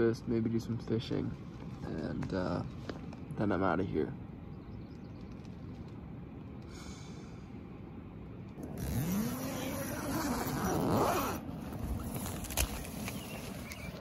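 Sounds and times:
tent zipper pulled open: 0:08.6 - 0:13.9.

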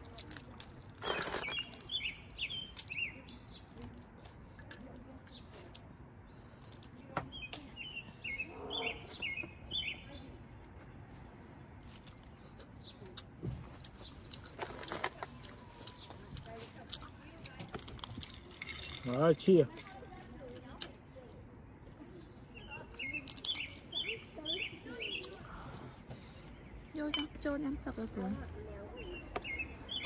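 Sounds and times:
small bird chirping: 0:01.0 - 0:03.8, 0:22.2 - 0:25.4, 0:28.6 - 0:30.0.

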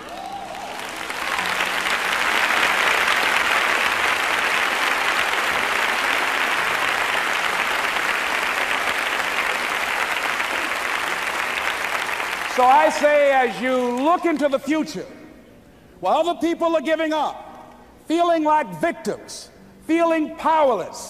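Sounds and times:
audience applauding: 0:00.0 - 0:14.4.

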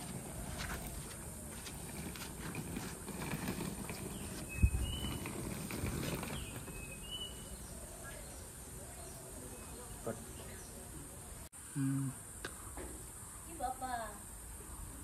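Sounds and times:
suitcase wheels rattling on concrete: 0:00.0 - 0:07.8.

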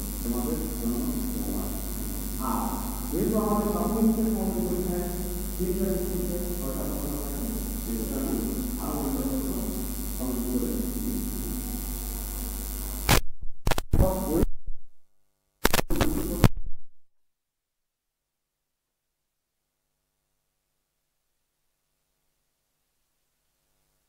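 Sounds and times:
loud crackling bursts: 0:00.0 - 0:14.5, 0:15.6 - 0:16.6
electrical mains hum: 0:00.0 - 0:17.1.

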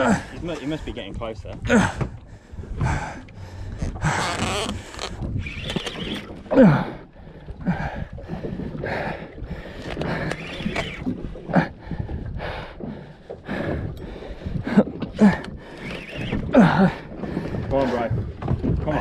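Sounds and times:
person breathing heavily: 0:01.7 - 0:04.2.

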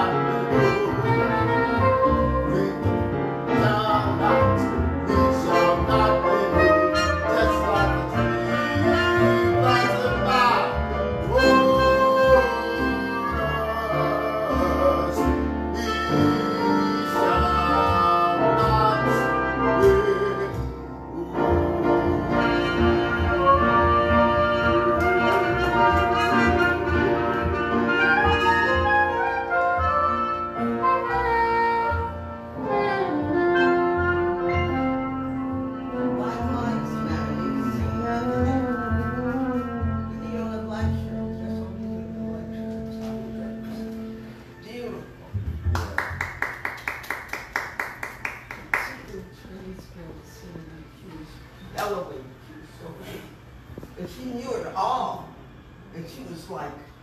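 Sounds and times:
saxophone melody: 0:00.0 - 0:03.2, 0:04.1 - 0:44.6
upright bass: 0:00.0 - 0:46.3
piano: 0:00.0 - 0:57.0.

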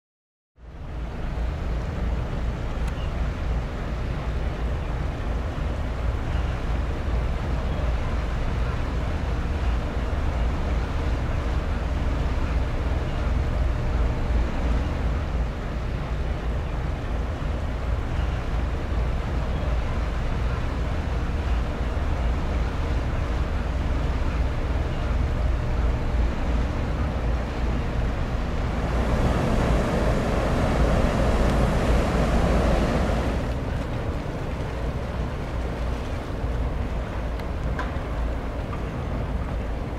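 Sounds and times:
ferry engine rumble: 0:00.7 - 0:39.9
churning water rushing: 0:00.8 - 0:39.9
wind buffeting microphone: 0:01.0 - 0:39.9.

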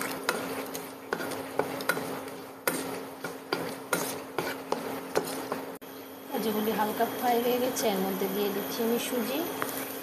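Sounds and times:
spatula scraping pan: 0:00.0 - 0:05.8
faint frying sizzle: 0:00.0 - 0:10.0.

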